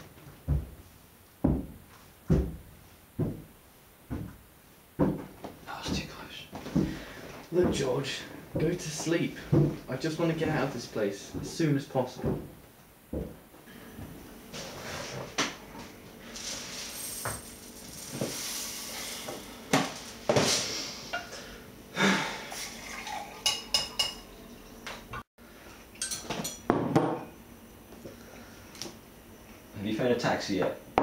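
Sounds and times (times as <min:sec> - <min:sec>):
juice pouring into a glass: 0:22.5 - 0:24.6
cutlery clinking against dishes: 0:26.0 - 0:26.7.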